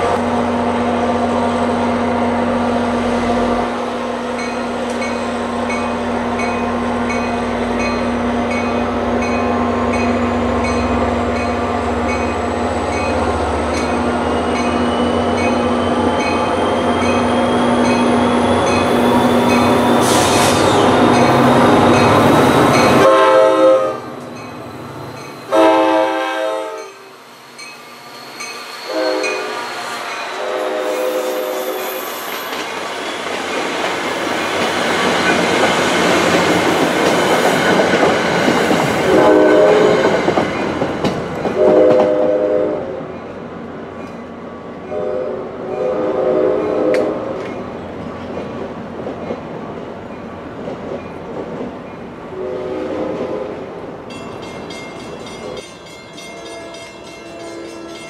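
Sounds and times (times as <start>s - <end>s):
train wheels rattling on rails: 0.0s - 26.0s, 26.6s - 45.1s, 45.7s - 58.0s
diesel locomotive engine rumbling: 0.0s - 58.0s
train air horn blasts: 22.8s - 24.2s, 25.5s - 27.1s, 28.9s - 32.0s, 39.0s - 40.2s, 41.6s - 43.0s, 44.9s - 47.4s, 52.3s - 53.6s.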